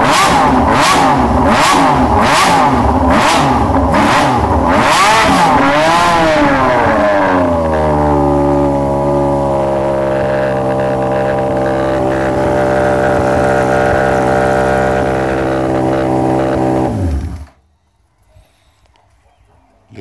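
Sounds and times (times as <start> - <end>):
motorcycle engine idling: 9.0 - 17.6.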